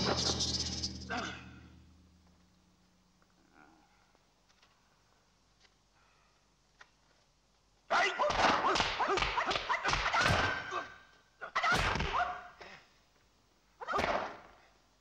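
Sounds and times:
punch and kick impacts: 8.3 - 10.8, 11.7 - 12.2, 14.0 - 14.4.

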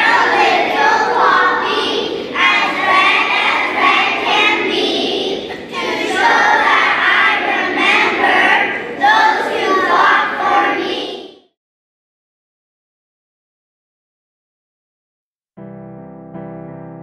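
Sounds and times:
children's choir singing: 0.0 - 11.6.

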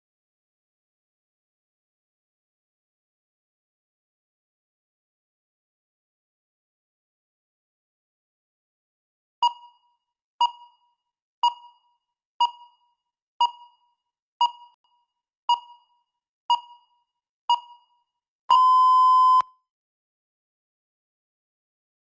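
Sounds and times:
short timer beeps: 9.4 - 9.8, 15.5 - 17.9, 18.5 - 19.6
long steady beep: 15.5 - 19.6.

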